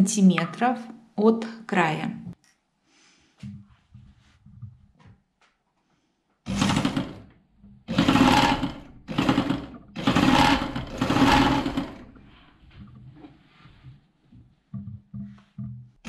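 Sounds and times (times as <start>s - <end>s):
sewing machine stitching: 6.5s - 12.6s.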